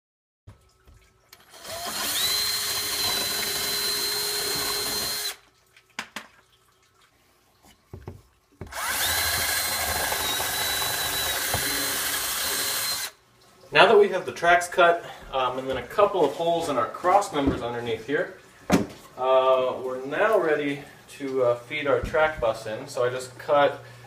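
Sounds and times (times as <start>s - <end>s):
cordless drill whining: 1.4s - 5.4s, 8.7s - 13.2s.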